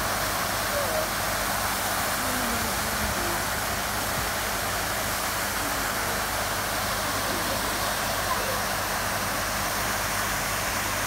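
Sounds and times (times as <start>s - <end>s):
water pouring into a pool: 0.0s - 11.0s.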